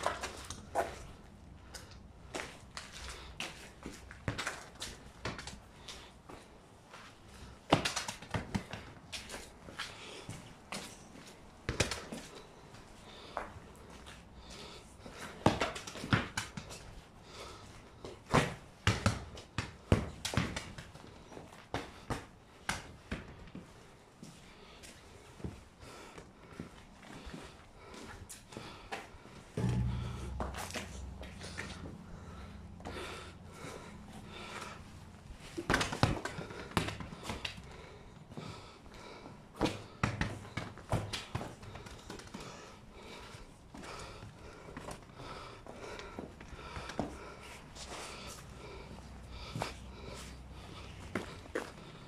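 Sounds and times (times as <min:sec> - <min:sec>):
football thudding on concrete: 0:15.4 - 0:16.8, 0:18.3 - 0:21.0, 0:29.6 - 0:32.2, 0:35.6 - 0:37.6, 0:39.6 - 0:42.3.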